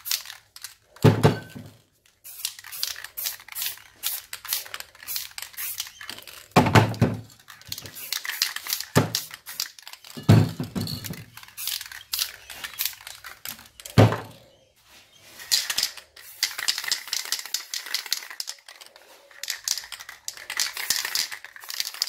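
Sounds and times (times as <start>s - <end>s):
spray paint cans hissing: 0.0s - 1.0s, 2.1s - 6.6s, 7.3s - 14.0s, 15.2s - 22.0s.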